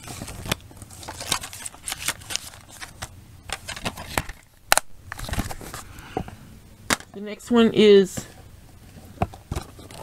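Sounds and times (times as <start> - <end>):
paper booklet being handled: 0.0 - 4.4.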